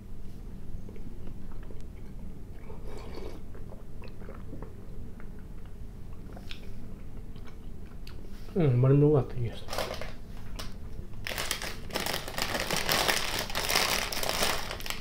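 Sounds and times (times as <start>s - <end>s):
low room hum: 0.0s - 15.0s
person chewing: 0.8s - 8.3s.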